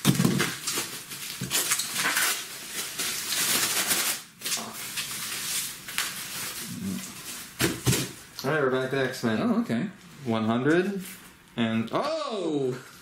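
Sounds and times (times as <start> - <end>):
bubble wrap crinkling: 0.0 - 8.5.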